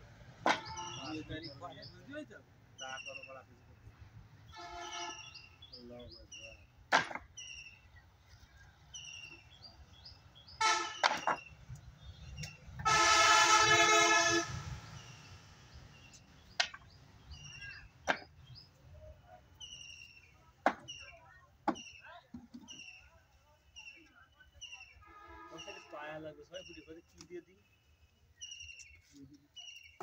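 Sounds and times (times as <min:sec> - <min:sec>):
wooden planks knocking: 0:00.4 - 0:00.8, 0:06.9 - 0:07.3, 0:10.9 - 0:11.5, 0:16.6 - 0:16.9, 0:18.0 - 0:18.4, 0:20.6 - 0:20.9
vehicle horn: 0:04.5 - 0:05.4, 0:10.6 - 0:11.1, 0:12.8 - 0:14.8, 0:25.0 - 0:26.0.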